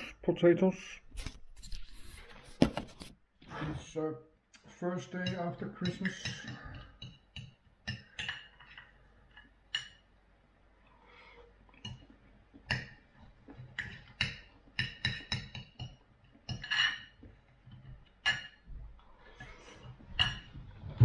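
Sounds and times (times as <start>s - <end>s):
knife and fork clinking on a plate: 13.8s - 17.2s.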